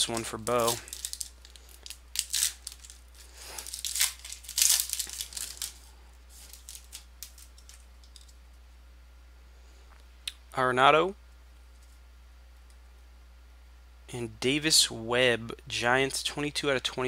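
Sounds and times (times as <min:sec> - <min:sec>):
foil wrapper tearing and crinkling: 0:00.0 - 0:07.8.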